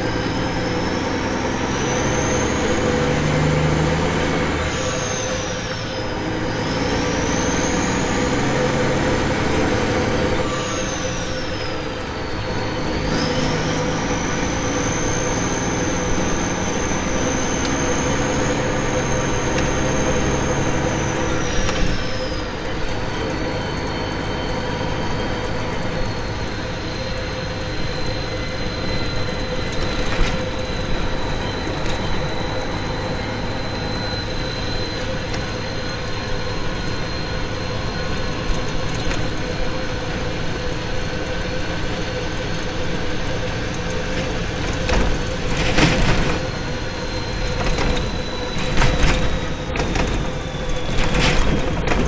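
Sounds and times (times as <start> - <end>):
heavy truck engine and tyre drone: 0.0 - 52.0.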